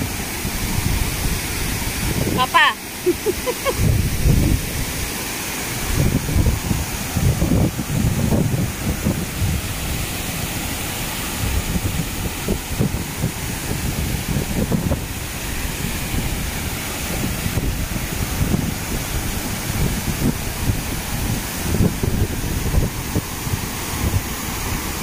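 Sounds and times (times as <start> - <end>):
waterfall rushing: 0.0 - 25.0
wind buffeting microphone: 0.0 - 25.0.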